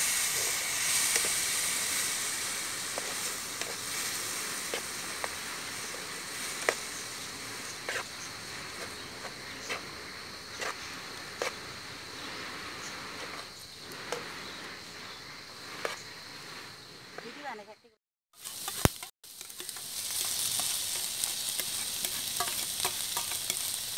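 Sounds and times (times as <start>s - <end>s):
vegetables sizzling in oil: 0.0s - 17.7s, 18.3s - 23.9s
metal spatula scraping a pan: 7.6s - 9.0s, 18.4s - 23.9s.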